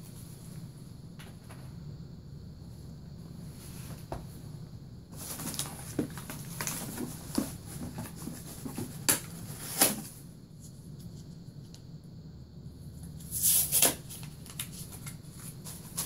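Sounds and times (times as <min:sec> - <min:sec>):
rummaging packing materials: 0:05.1 - 0:10.2.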